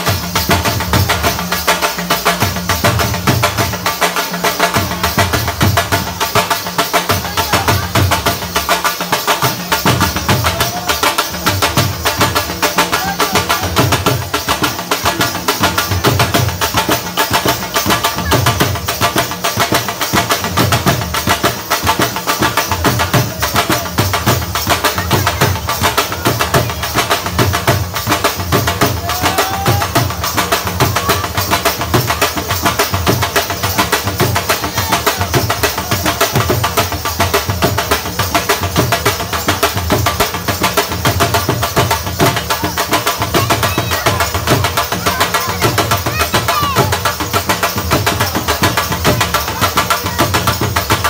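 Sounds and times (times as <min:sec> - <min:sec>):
fast drum rhythm: 0:00.0 - 0:51.0.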